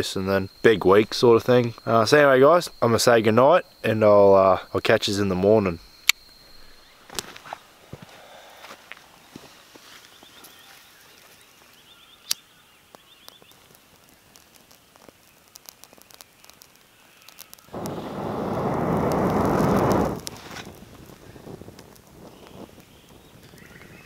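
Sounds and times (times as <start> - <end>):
dry twigs snapping and crackling: 11.2 - 23.7
person blowing on embers: 13.6 - 23.5.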